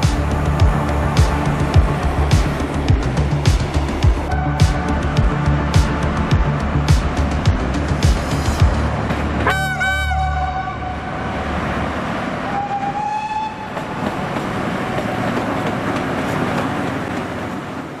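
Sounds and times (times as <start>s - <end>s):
train rumbling past: 0.0s - 18.0s
locomotive horn blasts: 4.3s - 4.7s, 9.4s - 11.1s.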